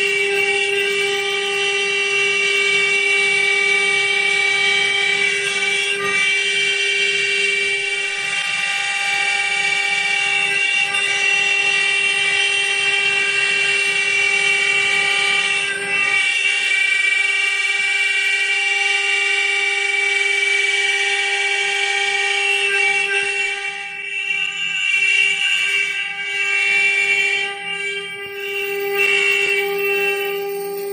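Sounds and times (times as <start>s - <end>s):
router spindles whining: 0.0s - 17.0s, 24.2s - 30.9s.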